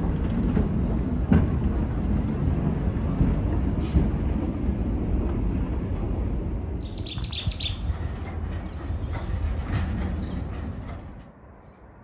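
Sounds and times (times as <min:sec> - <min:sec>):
funicular car rumbling: 0:00.0 - 0:11.8
birds chirping: 0:06.8 - 0:11.0.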